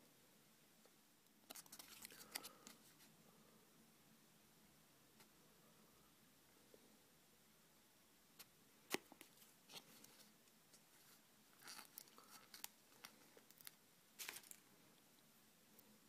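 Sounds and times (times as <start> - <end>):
play dough and plastic toys handled: 1.3 - 3.2, 8.4 - 15.9.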